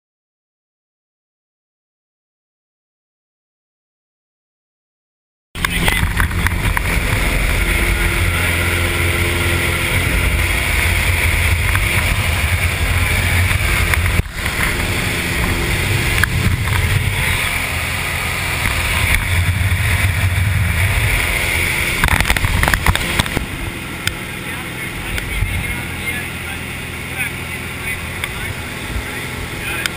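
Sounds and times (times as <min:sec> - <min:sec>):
rushing air: 0:05.6 - 0:24.4
propeller plane engine drone: 0:05.6 - 0:29.9.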